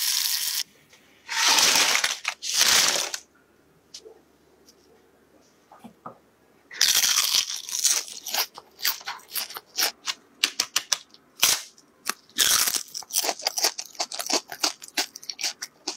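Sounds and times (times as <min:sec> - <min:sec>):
fried rice paper crunching: 0:01.3 - 0:03.2, 0:06.7 - 0:10.2, 0:11.4 - 0:15.9.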